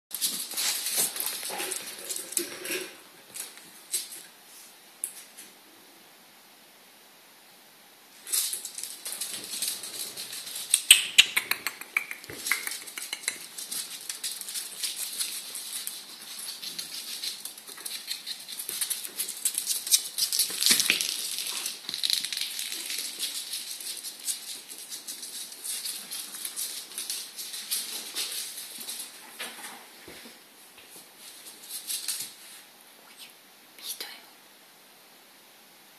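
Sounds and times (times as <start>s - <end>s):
claws clicking on laminate floor: 8.3s - 29.1s.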